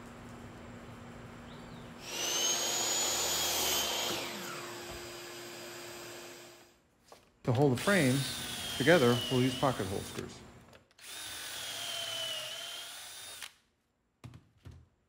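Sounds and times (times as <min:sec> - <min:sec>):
electric saw cutting wood: 0:02.0 - 0:06.7, 0:07.9 - 0:10.2.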